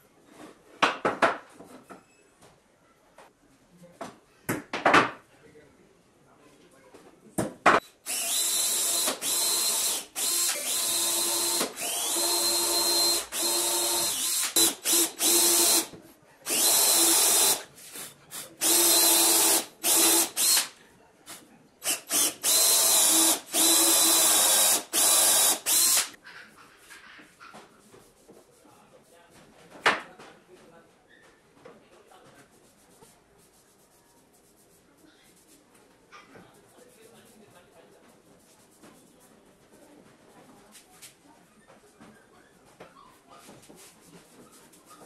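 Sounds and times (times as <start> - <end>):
cordless drill boring into wood: 8.1 - 15.9, 16.5 - 17.6, 18.4 - 20.7, 21.8 - 26.2.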